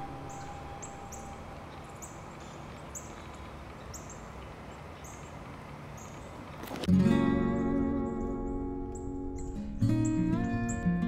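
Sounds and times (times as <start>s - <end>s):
songbird call notes: 0.0s - 6.4s.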